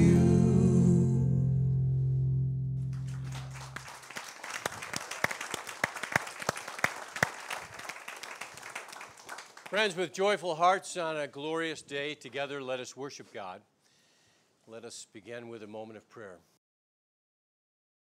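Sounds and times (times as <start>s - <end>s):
guitar chord ringing: 0.0s - 3.9s
audience applause: 2.9s - 10.0s.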